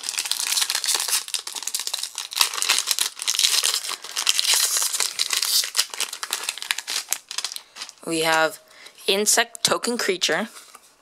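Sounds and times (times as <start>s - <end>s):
wrapper crinkling and tearing: 0.0s - 8.6s.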